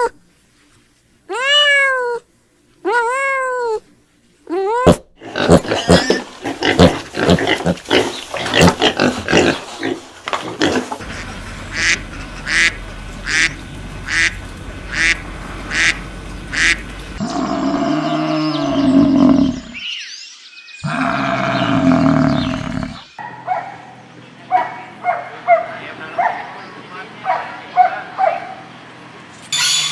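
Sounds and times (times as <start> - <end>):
pigs grunting: 4.8 - 19.8, 20.8 - 23.1
ducks quacking: 5.4 - 17.2
drawn-out animal calls: 10.8 - 19.8.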